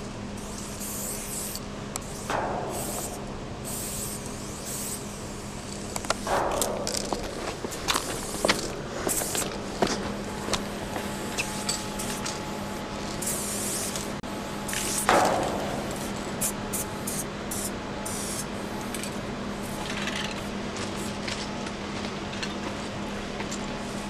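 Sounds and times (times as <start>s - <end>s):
low steady hum: 0.0s - 24.0s
spray paint can hissing: 0.4s - 9.5s, 10.6s - 18.5s.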